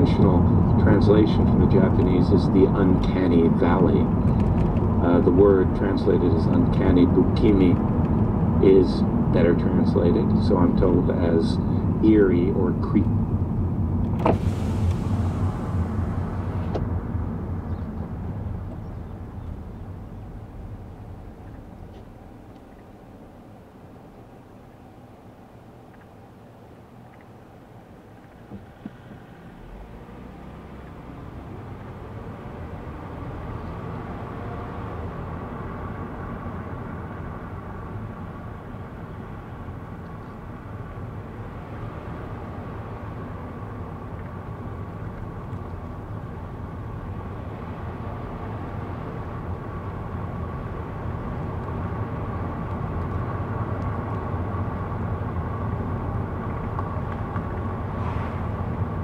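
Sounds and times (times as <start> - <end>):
faint steady whine: 0.0 - 29.9
engine and tyre rumble: 0.0 - 59.0.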